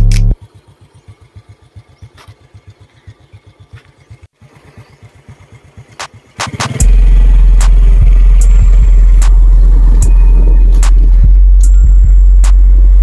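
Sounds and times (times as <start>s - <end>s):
small engine puttering: 0.0s - 11.9s
loud background music: 6.4s - 13.0s.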